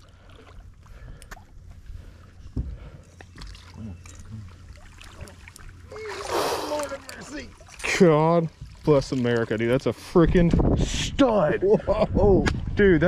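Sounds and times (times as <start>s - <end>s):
water sloshing around boat: 0.0s - 10.7s
low wind rumble on microphone: 10.1s - 13.0s.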